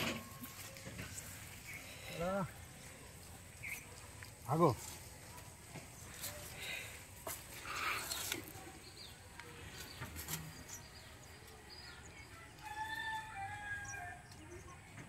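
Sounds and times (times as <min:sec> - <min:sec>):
rooster crowing: 0:12.6 - 0:14.2.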